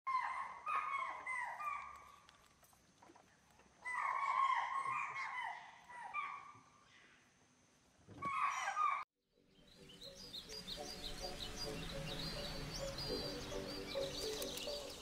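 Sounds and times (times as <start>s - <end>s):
birds chirping: 8.3s - 15.0s
music: 9.3s - 15.0s.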